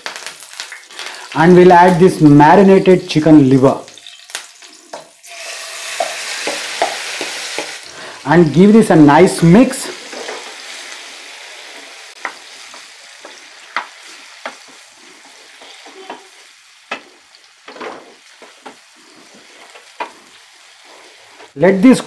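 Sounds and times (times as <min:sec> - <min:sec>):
liver sizzling in hot oil: 0:00.0 - 0:21.6
spatula knocking and scraping pan: 0:05.9 - 0:07.8.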